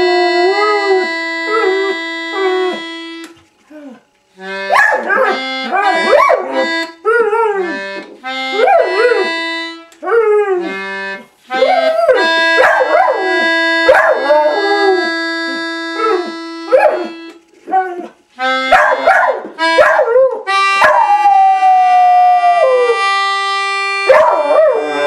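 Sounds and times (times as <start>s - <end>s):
melodica notes: 0.0s - 3.6s, 4.2s - 21.1s, 21.8s - 25.0s
dog howling: 19.9s - 23.0s, 24.1s - 25.0s.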